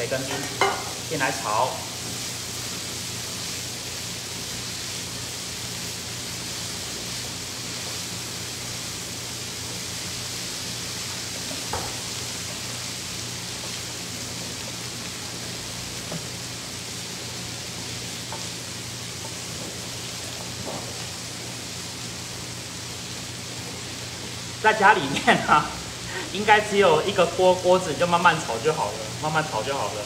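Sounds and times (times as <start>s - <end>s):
bacon and onions sizzling in a pan: 0.0s - 30.0s
spatula tap: 11.7s - 12.0s.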